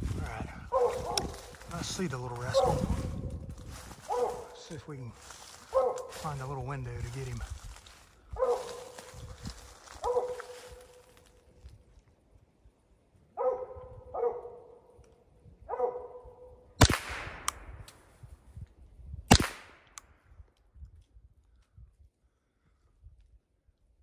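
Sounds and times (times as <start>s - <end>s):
dog barking: 0.7s - 1.4s, 2.5s - 3.1s, 4.0s - 4.7s, 5.7s - 6.2s, 8.4s - 9.0s, 10.0s - 11.0s, 13.4s - 14.8s, 15.7s - 16.5s
rifle shots: 16.8s - 17.9s, 19.3s - 20.0s.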